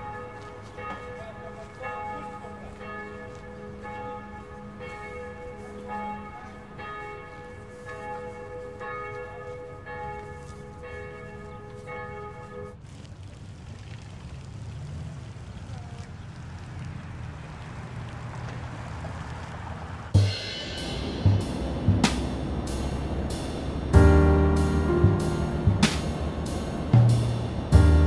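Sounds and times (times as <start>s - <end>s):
church bells ringing: 0.0s - 12.8s, 20.2s - 28.0s.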